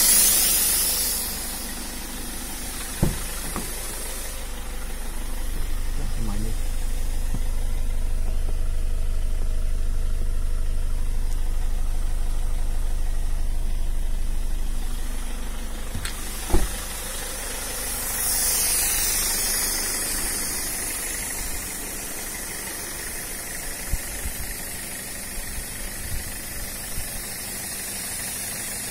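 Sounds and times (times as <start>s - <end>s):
car engine idling: 0.0s - 28.9s
sharp clunk: 2.9s - 3.9s, 15.9s - 16.8s.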